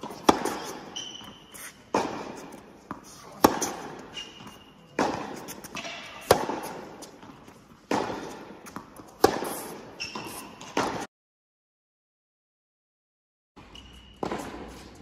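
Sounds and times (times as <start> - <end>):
tennis ball hit by racket: 0.0 - 11.1, 14.2 - 15.0.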